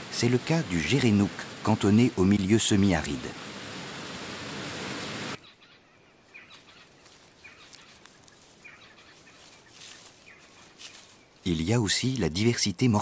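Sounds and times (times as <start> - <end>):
waterfall rushing: 0.0 - 5.4
bird chirping: 5.4 - 11.5.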